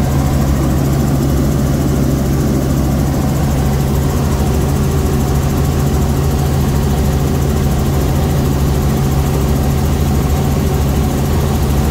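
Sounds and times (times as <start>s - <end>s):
helicopter engine and rotor drone: 0.0s - 11.9s.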